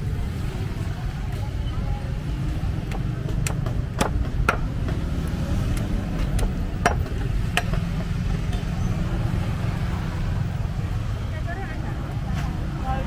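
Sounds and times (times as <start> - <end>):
low rumble of market: 0.0 - 13.0
sharp clicks and knocks: 2.7 - 8.8.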